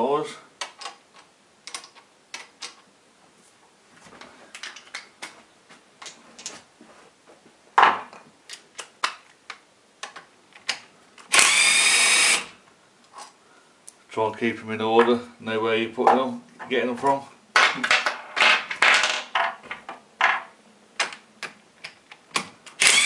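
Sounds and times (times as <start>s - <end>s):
whirring buzz of socket tool: 11.3s - 12.6s, 22.8s - 23.0s.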